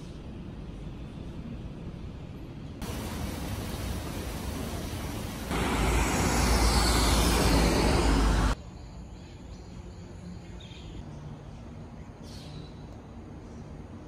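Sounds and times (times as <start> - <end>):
quiet outdoor background: 0.0 - 14.0
loud rushing with deep rumble: 2.8 - 8.6.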